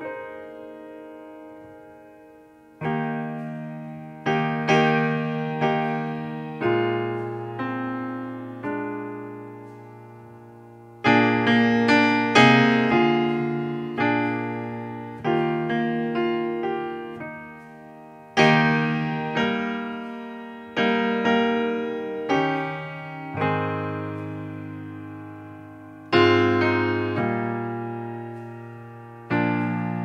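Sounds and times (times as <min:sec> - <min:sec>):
slow piano music: 0:00.0 - 0:30.0.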